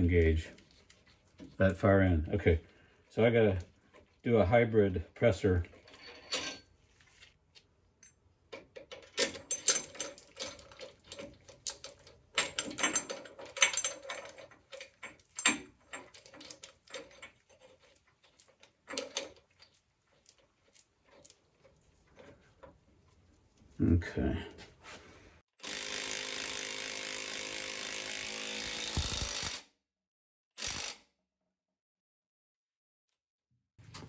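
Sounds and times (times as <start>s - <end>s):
steel parts clinking and rattling: 5.6s - 6.7s, 8.0s - 22.8s.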